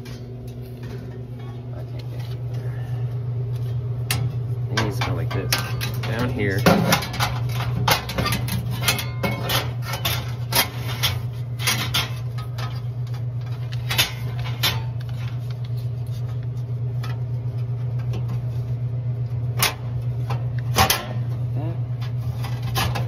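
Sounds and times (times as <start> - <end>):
steady low hum: 0.0 - 23.0.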